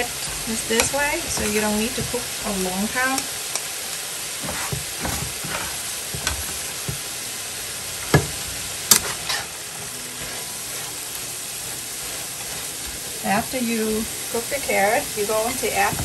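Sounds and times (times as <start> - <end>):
spatula scraping a pan: 0.0 - 3.3, 4.3 - 7.1, 8.1 - 16.0
vegetables sizzling in a frying pan: 0.0 - 16.0
spatula knocking on a pan: 0.3 - 3.3, 4.4 - 7.1, 8.0 - 8.4.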